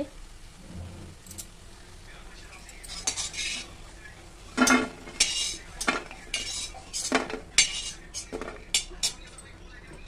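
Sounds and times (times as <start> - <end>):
metal spoon scraping a wok: 2.9 - 3.7, 4.6 - 9.2.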